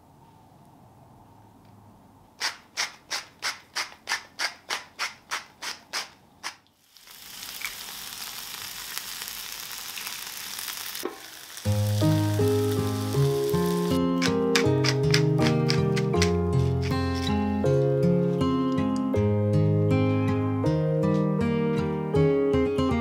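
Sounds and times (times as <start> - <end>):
egg sizzling on hot plate: 6.7 - 17.0
salt mill grinding: 11.1 - 17.4
music: 11.7 - 23.0.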